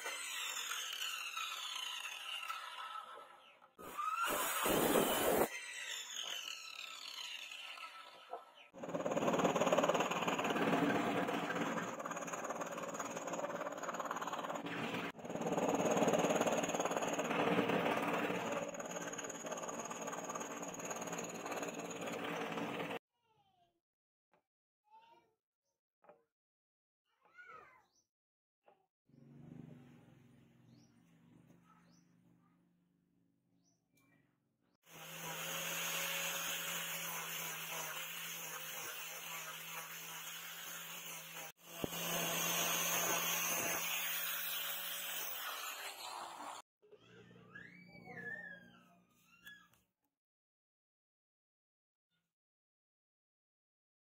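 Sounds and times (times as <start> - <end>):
angle grinder sanding wood: 0.0 - 3.0, 4.0 - 23.0, 34.9 - 46.6
scroll saw cutting wood: 0.0 - 23.0, 34.9 - 46.6.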